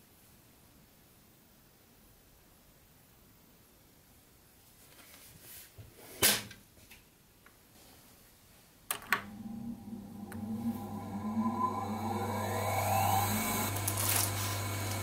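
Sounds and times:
sewing machine motor humming: 9.2s - 15.0s.

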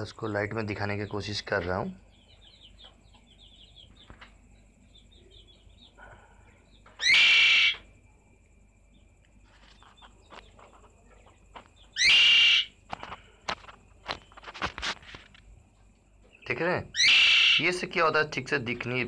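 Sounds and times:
faint budgie twittering: 0.6s - 7.9s, 9.5s - 13.1s, 16.3s - 19.0s
budgerigar harsh call: 7.0s - 7.8s, 12.0s - 12.8s, 16.9s - 18.0s.

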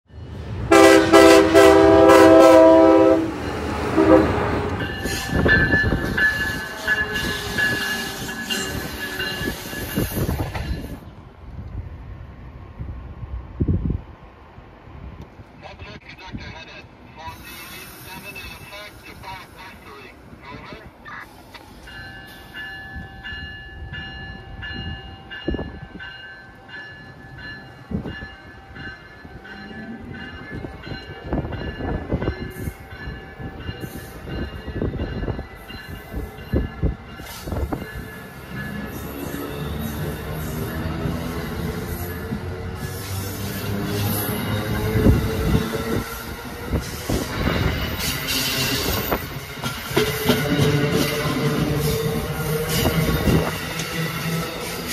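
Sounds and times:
train wheels rumbling on rails: 0.1s - 14.1s, 17.3s - 54.9s
train wheels squealing: 4.8s - 11.0s, 35.6s - 49.3s.

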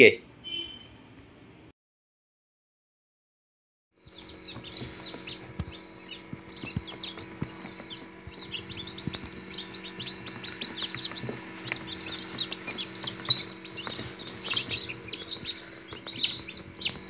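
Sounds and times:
chicks peeping: 4.0s - 17.0s
steady low hum: 4.0s - 17.0s.

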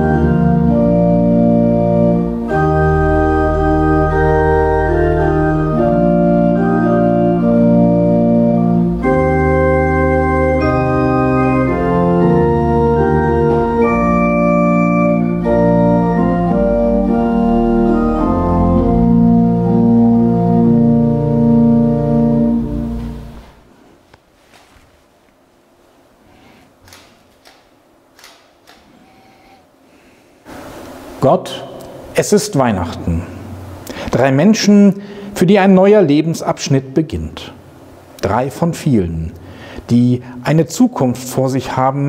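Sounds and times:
pipe organ playing chords: 0.0s - 23.6s.

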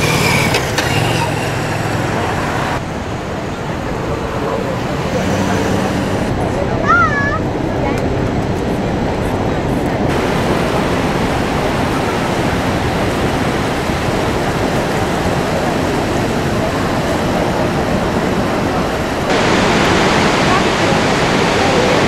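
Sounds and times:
waterfall rushing: 9.0s - 22.0s.

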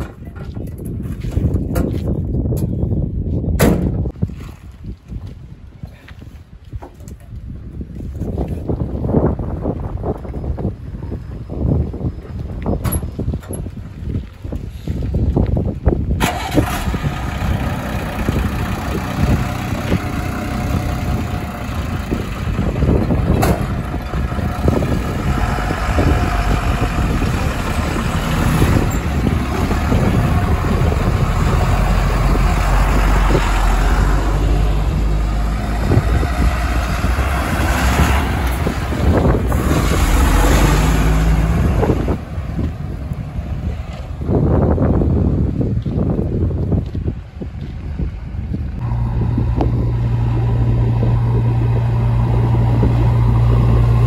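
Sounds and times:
diesel engine running: 16.2s - 45.6s, 47.3s - 54.0s.

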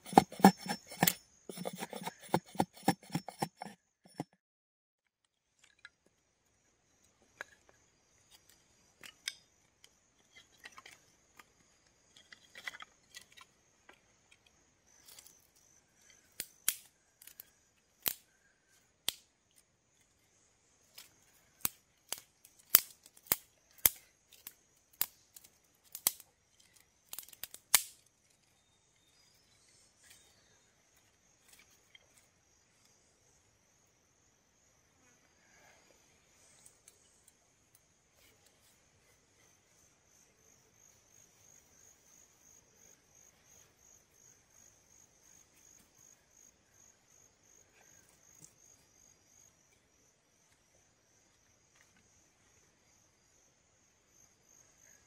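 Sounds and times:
sticks snapping: 16.4s - 17.4s, 18.0s - 18.2s, 21.0s - 26.3s, 27.1s - 28.1s.

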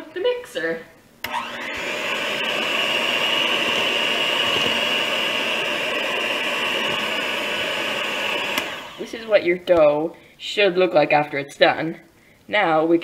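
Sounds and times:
electric hand mixer whining: 1.3s - 9.3s.

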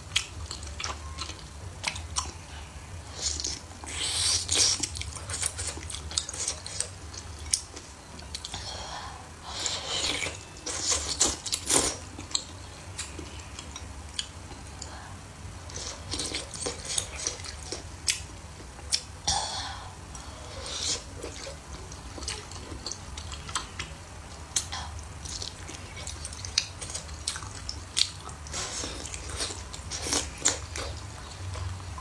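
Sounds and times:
wet chewing: 24.6s - 31.7s.

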